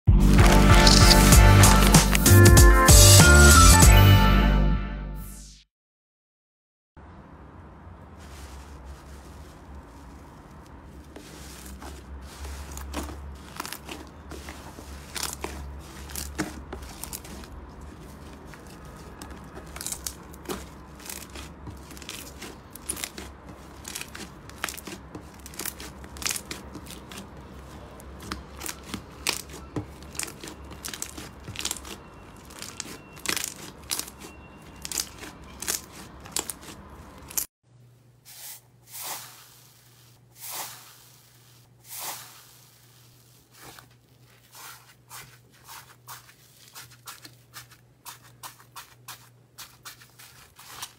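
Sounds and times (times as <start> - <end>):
crunchy slime crackling: 8.2 - 37.5, 38.3 - 50.9
slime squelching with sticky pops: 11.2 - 36.8.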